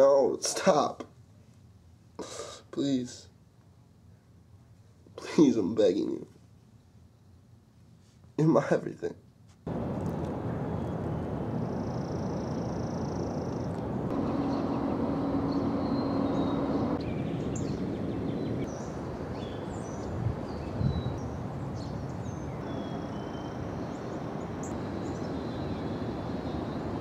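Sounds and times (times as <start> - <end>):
low rumble: 9.7 - 18.7
low hum: 9.7 - 20.0
small birds chirping: 10.6 - 27.0.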